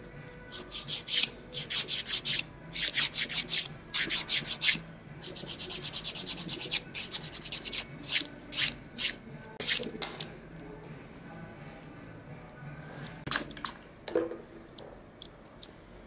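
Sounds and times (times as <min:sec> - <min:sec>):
nail file rasping on fingernails: 0:00.6 - 0:09.9.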